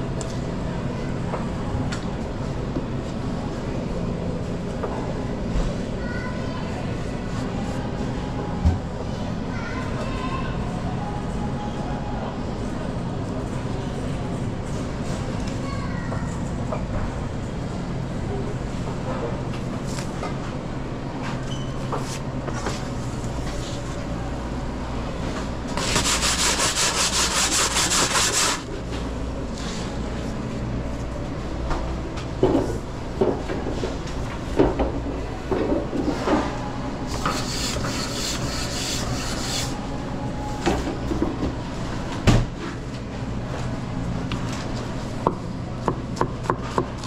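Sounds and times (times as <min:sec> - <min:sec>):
low hum of kitchen equipment: 0:00.0 - 0:47.0
scraping or rubbing: 0:25.8 - 0:28.6, 0:37.1 - 0:39.8.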